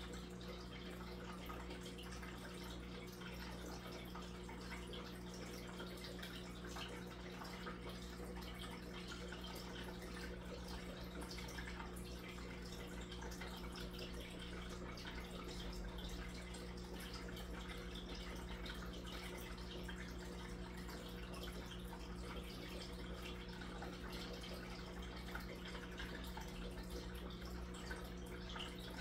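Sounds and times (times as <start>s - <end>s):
low steady hum: 0.0s - 29.0s
water trickling and splashing: 0.0s - 29.0s.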